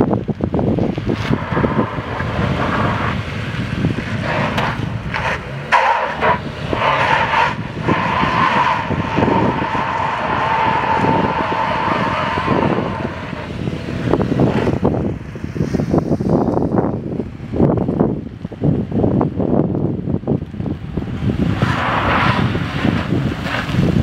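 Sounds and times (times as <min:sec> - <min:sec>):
car engine under load: 0:00.0 - 0:24.0
tyres squealing on pavement: 0:01.1 - 0:13.5.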